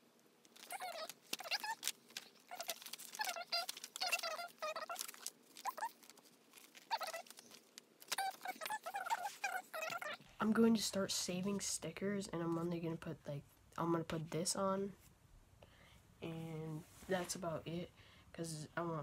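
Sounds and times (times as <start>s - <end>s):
small animal squeaking and chirping: 0.6s - 6.1s, 6.7s - 10.2s.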